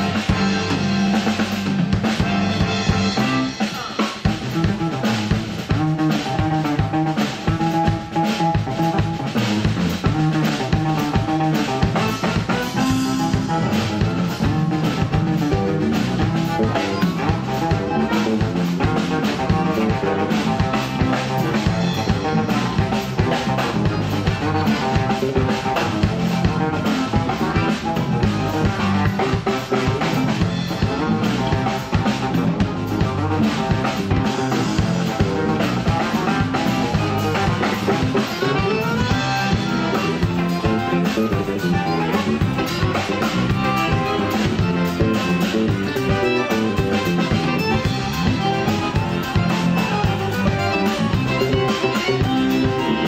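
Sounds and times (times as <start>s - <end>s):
accordion: 0.0s - 53.0s
drum kit beat: 0.0s - 53.0s
electric bass: 0.0s - 53.0s
electric guitar: 0.0s - 53.0s.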